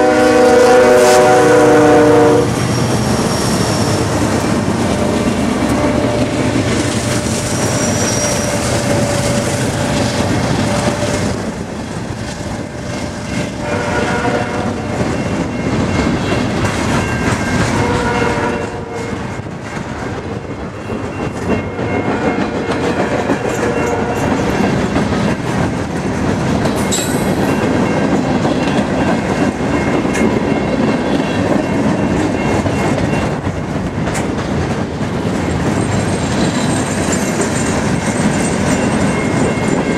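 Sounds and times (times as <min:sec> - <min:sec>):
diesel locomotive: 0:00.0 - 0:39.9
train wheel clatter: 0:02.3 - 0:39.9
short squealing tones: 0:07.2 - 0:09.5.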